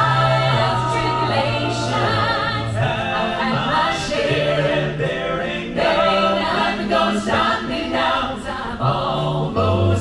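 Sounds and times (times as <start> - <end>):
sung bass line: 0.0 - 6.6
vocal group singing in harmony: 0.0 - 10.0.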